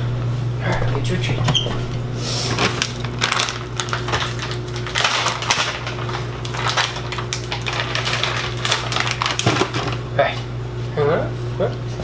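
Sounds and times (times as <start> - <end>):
packaging crinkling and clicking: 2.5 - 10.0.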